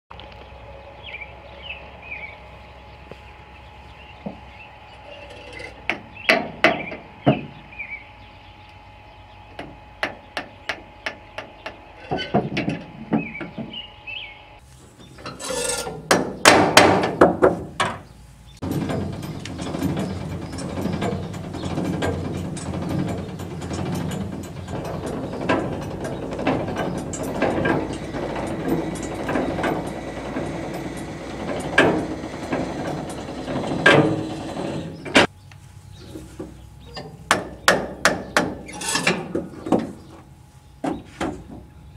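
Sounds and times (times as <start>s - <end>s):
birds chirping: 0.1s - 16.8s, 17.6s - 38.7s, 39.4s - 41.9s
steady rumble: 0.2s - 40.8s
metal clanking and rattling: 5.0s - 7.6s, 12.0s - 13.8s, 15.0s - 18.0s, 18.6s - 35.3s, 36.8s - 40.1s
metal latch clicks and knocks: 18.6s - 35.3s.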